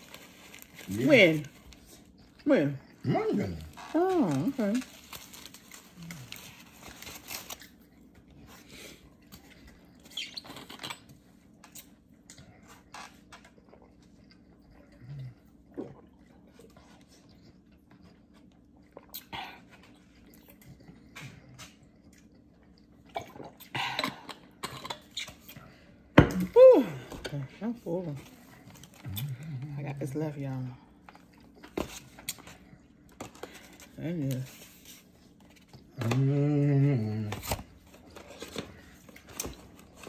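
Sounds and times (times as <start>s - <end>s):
faint steady hum: 0.0s - 40.0s
chewing mouth noises: 9.1s - 25.6s.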